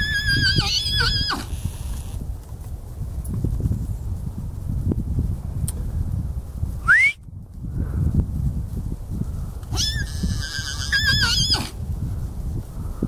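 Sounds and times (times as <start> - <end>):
horse whinnying: 0.0 - 2.2, 9.7 - 11.8
wind rumble on microphone: 0.0 - 13.0.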